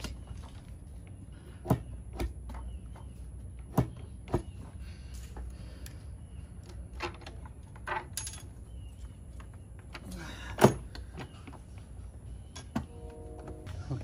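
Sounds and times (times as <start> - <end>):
clicks and knocks of engine parts: 6.6 - 11.9.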